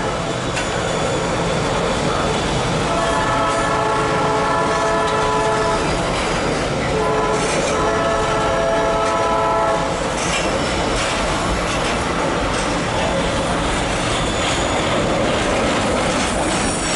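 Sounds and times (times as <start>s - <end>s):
freight cars rolling on rails: 0.0s - 16.9s
train horn blasts: 2.8s - 6.0s, 6.9s - 10.0s.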